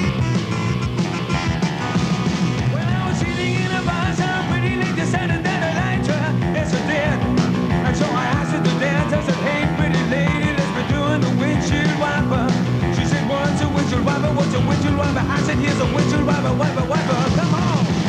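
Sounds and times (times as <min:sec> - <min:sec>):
saxophone: 0:00.0 - 0:02.8
pop-rock band music: 0:00.0 - 0:18.0.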